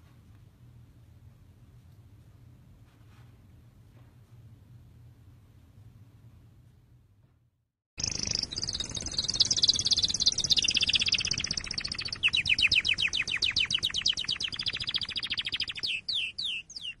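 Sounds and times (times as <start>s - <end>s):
songbird singing trills: 8.0s - 17.0s.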